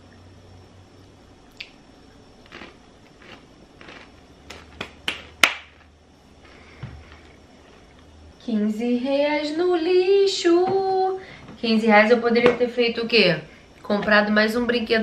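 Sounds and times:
potato crisp crunching: 0:02.4 - 0:08.0.

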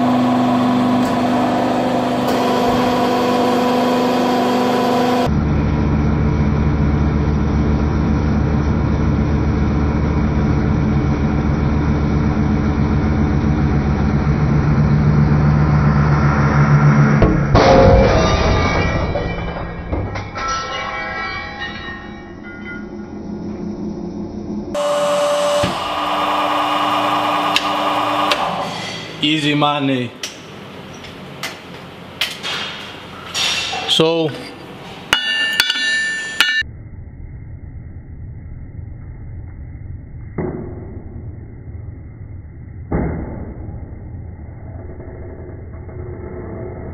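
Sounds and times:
hydraulic press humming: 0:00.0 - 0:05.4, 0:21.6 - 0:29.2
metallic ringing: 0:17.3 - 0:24.0, 0:35.1 - 0:36.7
loud crack of metal breaking: 0:17.6 - 0:22.3.

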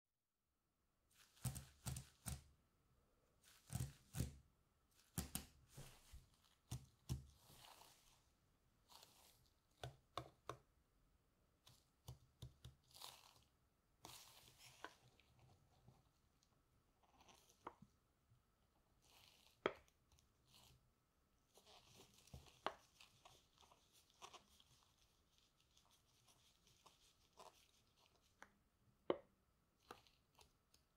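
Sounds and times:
rubber gloves rustling: 0:03.4 - 0:09.9, 0:12.8 - 0:16.5, 0:19.0 - 0:20.8, 0:21.4 - 0:28.5, 0:29.8 - 0:30.9.

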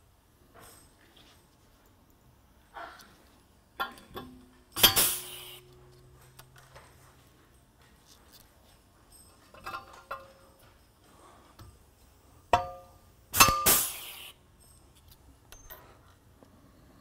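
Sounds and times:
rivet clinking into metal: 0:03.8 - 0:10.8
exhaust air hiss: 0:04.8 - 0:05.8, 0:13.3 - 0:14.4
ringing metallic knock: 0:12.6 - 0:13.6
rivet gun sharp snap: 0:13.4 - 0:14.2.

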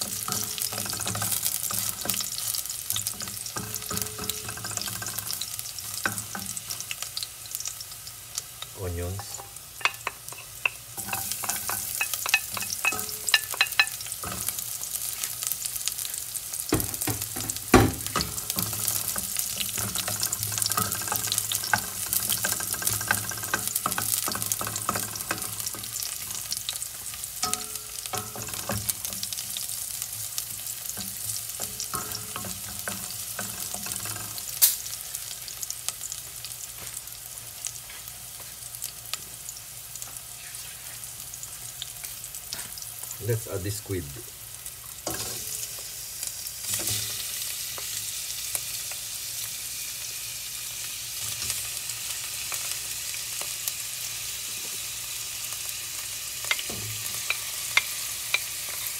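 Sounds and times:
onions sizzling in oil: 0:00.0 - 0:58.9
loud knocks on pot: 0:16.7 - 0:18.3.

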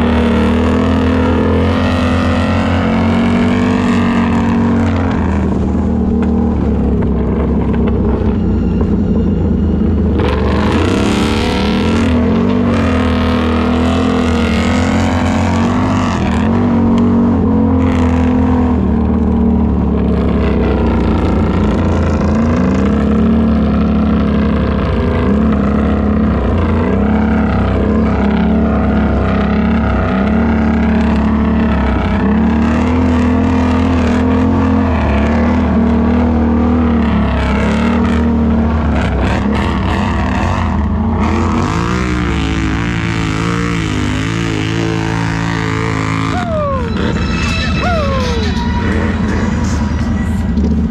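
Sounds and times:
atv engine revving: 0:00.0 - 0:50.9
rushing noise: 0:45.0 - 0:50.9.

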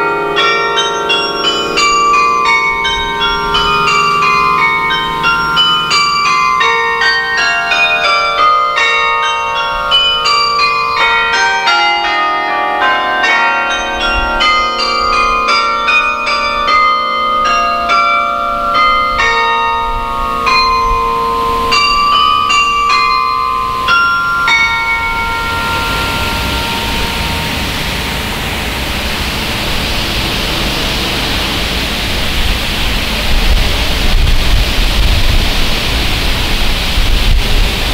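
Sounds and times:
carillon bells ringing: 0:00.0 - 0:35.6
steady rushing noise: 0:20.0 - 0:37.9.

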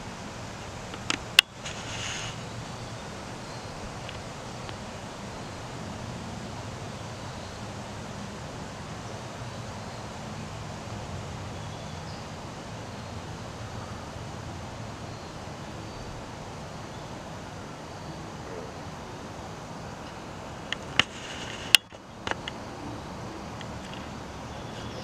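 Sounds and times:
even hiss: 0:00.0 - 0:25.0.

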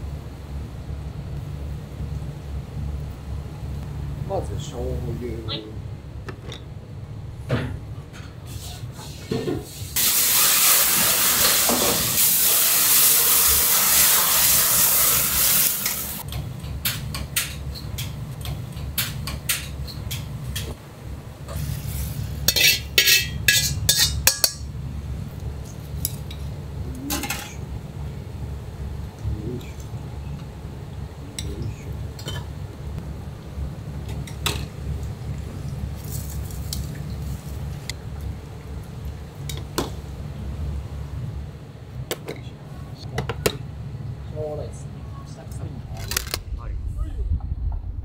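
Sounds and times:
loud frying hiss: 0:08.4 - 0:16.3, 0:21.4 - 0:24.7
pots and bowls clattering: 0:22.5 - 0:24.7
low hum: 0:43.7 - 0:48.0.

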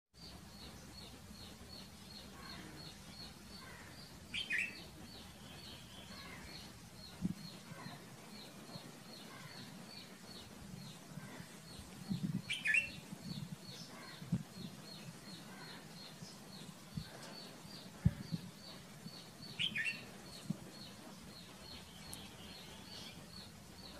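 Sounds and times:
bird chirping calls: 0:00.2 - 0:23.9.

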